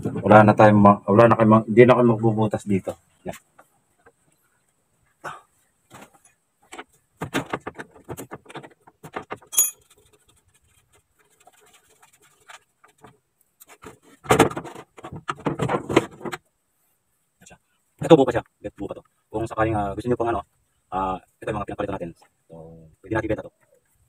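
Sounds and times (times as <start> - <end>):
metal clinking and rattling: 7.9 - 10.3
bright metallic ping: 9.6 - 9.8.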